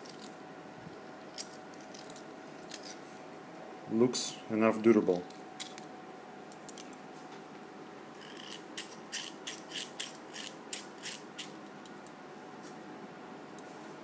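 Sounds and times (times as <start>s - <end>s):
pepper grinder ratchet clicking: 8.2s - 11.6s.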